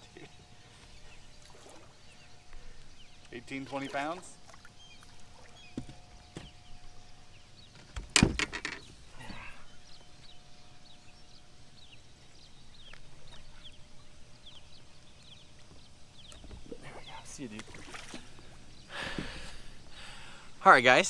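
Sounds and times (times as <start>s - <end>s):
thump against boat side: 8.0s - 8.8s.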